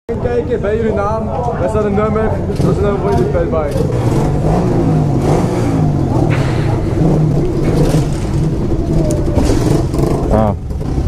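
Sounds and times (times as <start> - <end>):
small motorbike engine revving: 2.5 - 11.0.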